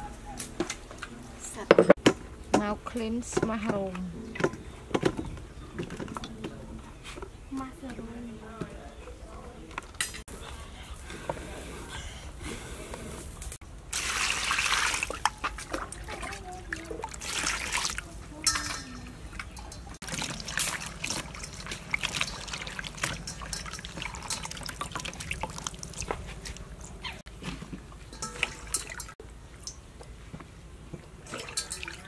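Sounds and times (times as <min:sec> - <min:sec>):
water dripping and trickling: 0:13.8 - 0:32.0
water sloshing in metal bowl: 0:13.9 - 0:29.9, 0:30.9 - 0:32.0.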